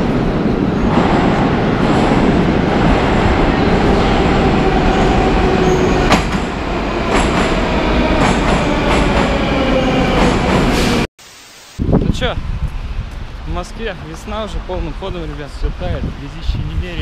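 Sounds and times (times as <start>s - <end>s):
train rushing: 0.0s - 11.1s.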